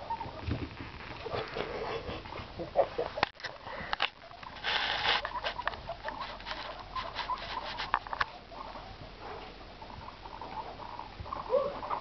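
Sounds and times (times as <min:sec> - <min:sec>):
guinea pigs scurrying on carpet: 0:00.0 - 0:02.6, 0:03.4 - 0:12.0
rustling: 0:00.0 - 0:12.0
quick ticks and scrabbling: 0:03.2 - 0:08.3.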